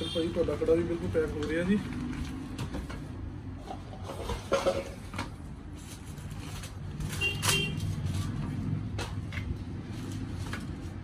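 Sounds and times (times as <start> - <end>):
low rumble of street traffic: 0.0 - 11.0
paper packaging rustling: 5.7 - 8.4.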